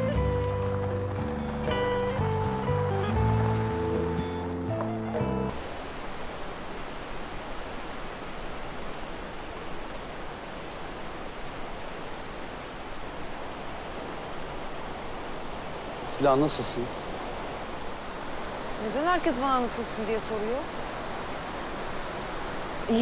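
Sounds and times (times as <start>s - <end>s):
river rushing over rapids: 5.5s - 23.0s.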